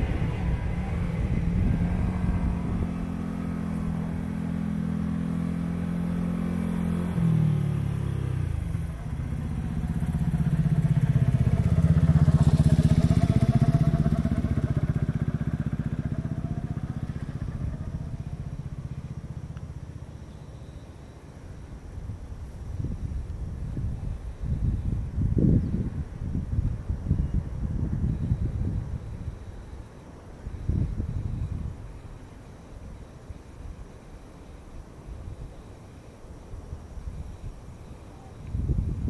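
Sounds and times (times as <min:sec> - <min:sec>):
vehicle engines passing: 0:00.0 - 0:21.4.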